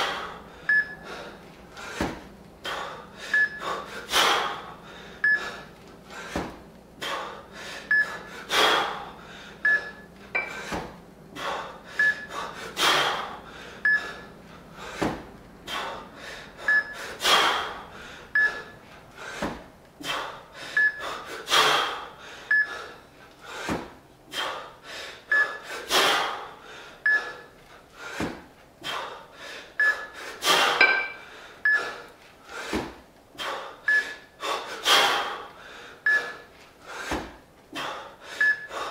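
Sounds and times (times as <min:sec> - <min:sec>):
man breathing hard: 0:00.0 - 0:38.9
loud forceful exhale: 0:30.2 - 0:30.9.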